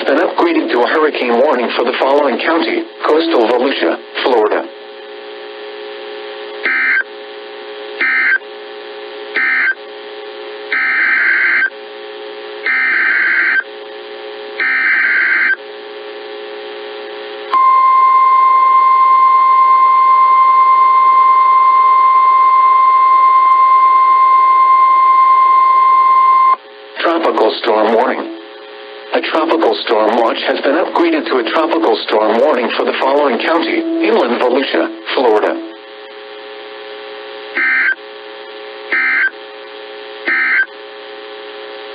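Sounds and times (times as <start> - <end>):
steady warning alarm tone: 1.8 - 3.8, 6.6 - 7.1, 8.0 - 8.4, 9.4 - 9.8, 10.7 - 11.7, 12.6 - 13.6, 14.6 - 15.6, 27.8 - 28.4, 31.5 - 35.8, 37.6 - 38.0, 38.9 - 39.3, 40.3 - 40.7.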